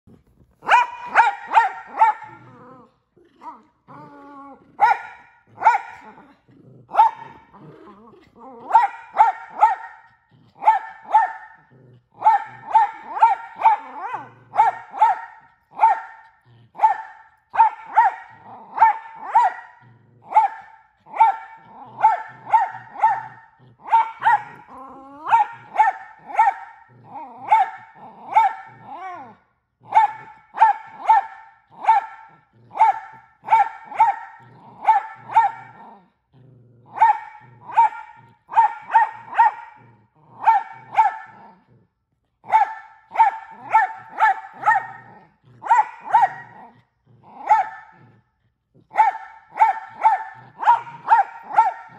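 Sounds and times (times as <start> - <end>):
dog barking sharply: 0.6 - 2.3, 49.0 - 51.9.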